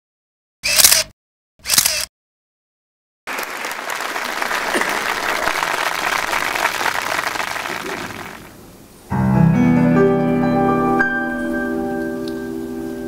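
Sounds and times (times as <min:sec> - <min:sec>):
audience applauding: 0:03.3 - 0:08.6.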